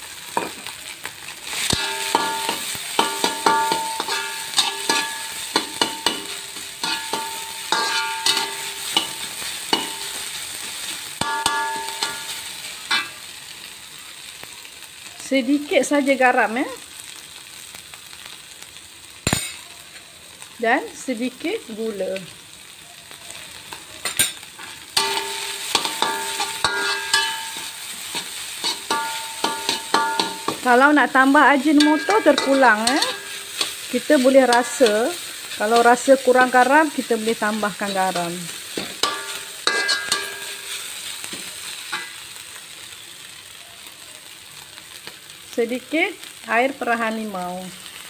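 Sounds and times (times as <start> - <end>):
food sizzling in a wok: 0.0 - 48.0
metal spatula scraping pan: 1.5 - 13.1, 23.7 - 36.6, 37.3 - 42.2
pan ringing: 1.7 - 10.2, 11.2 - 13.1, 25.0 - 27.8, 28.7 - 30.9, 31.6 - 33.7, 39.0 - 40.7.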